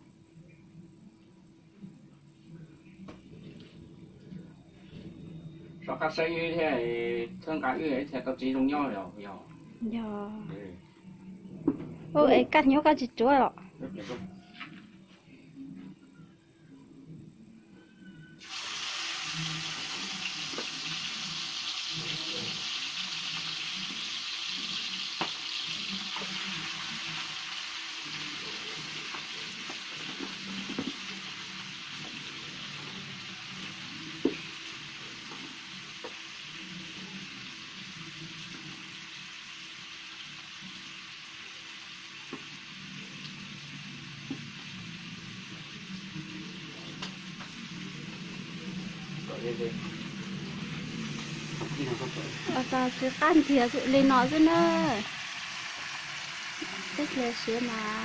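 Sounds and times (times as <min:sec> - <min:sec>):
meat sizzling in a frying pan: 0:18.4 - 0:58.0.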